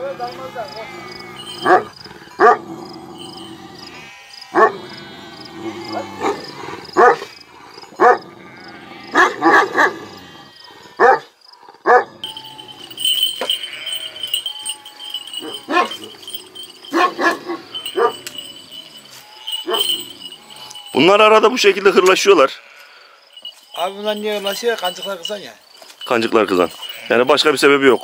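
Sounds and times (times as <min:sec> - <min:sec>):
dogs barking: 0:00.9 - 0:08.4, 0:09.0 - 0:10.2, 0:11.0 - 0:20.9.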